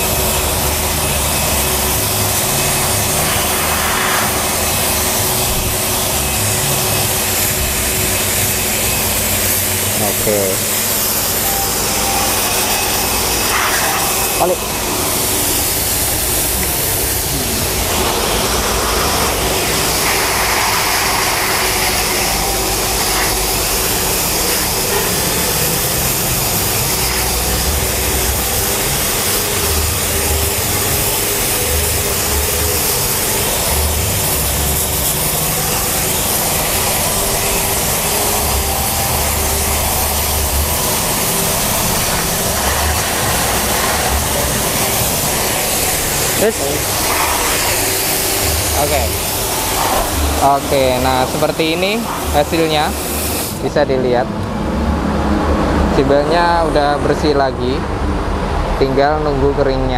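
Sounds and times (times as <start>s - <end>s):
pressure washer water jet spraying: 0.0s - 54.1s
pump motor drone: 0.0s - 59.9s.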